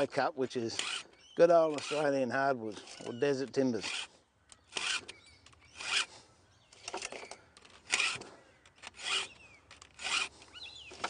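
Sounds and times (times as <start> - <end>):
file rasping on chainsaw chain: 0.7 - 4.1, 5.7 - 6.1, 7.9 - 8.2, 9.0 - 9.3, 9.9 - 10.4.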